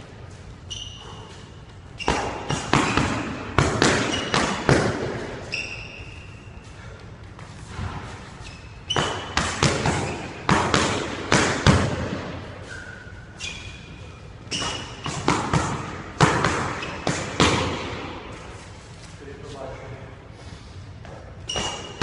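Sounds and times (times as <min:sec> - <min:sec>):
sneakers squeaking on wooden floor: 0:00.2 - 0:10.7, 0:11.7 - 0:19.1, 0:21.0 - 0:22.0
boxing gloves punches smacking: 0:02.0 - 0:05.3, 0:08.9 - 0:12.4, 0:14.5 - 0:18.1.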